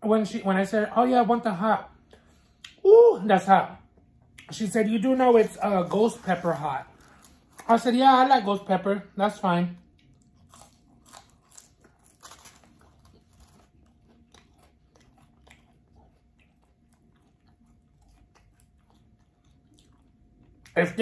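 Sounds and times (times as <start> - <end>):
chewing crunchy food: 3.8 - 8.3, 9.8 - 21.0.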